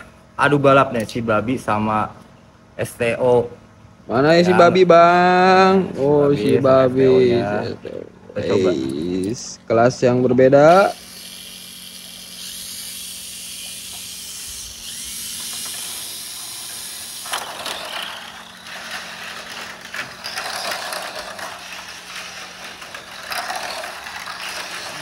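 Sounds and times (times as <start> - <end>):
high-pitched motor whir: 10.7 - 25.0
toy cars clattering on plastic track: 11.0 - 25.0.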